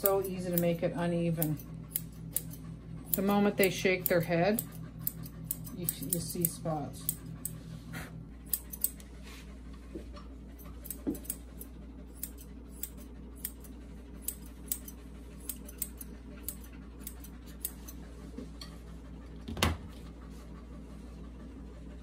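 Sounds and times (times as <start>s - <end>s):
scissors snipping hair: 0.0s - 7.6s, 8.5s - 9.1s, 10.6s - 18.0s
steady low hum: 0.0s - 22.0s.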